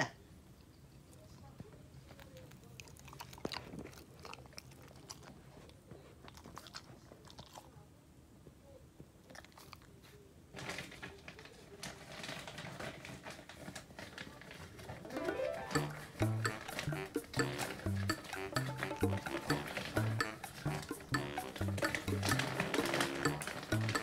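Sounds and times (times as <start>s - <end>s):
dog crunching a treat: 2.0s - 7.8s, 9.2s - 15.0s, 16.5s - 24.0s
rustling: 10.1s - 24.0s.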